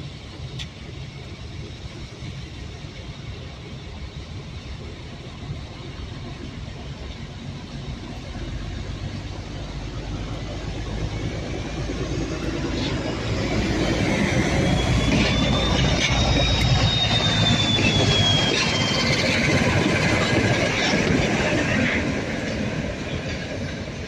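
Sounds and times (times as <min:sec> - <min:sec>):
diesel locomotive engines: 0:00.0 - 0:24.0
wheel squeal: 0:12.6 - 0:23.6.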